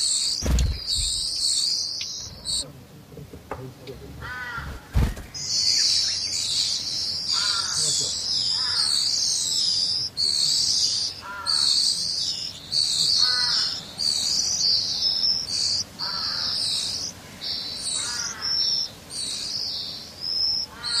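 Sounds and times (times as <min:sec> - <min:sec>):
nestlings begging chatter: 0:00.0 - 0:21.0.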